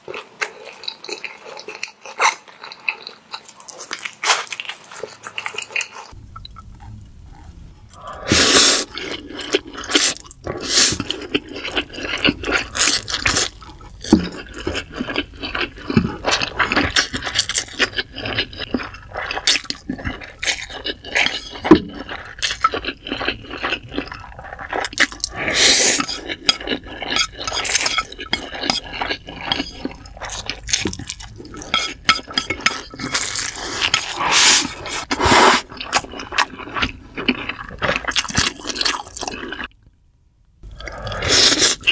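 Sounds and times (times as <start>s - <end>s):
slurping and chewing noodles: 7.9s - 39.8s, 40.7s - 41.9s
utensils scraping a dish: 25.4s - 30.3s, 31.6s - 35.6s.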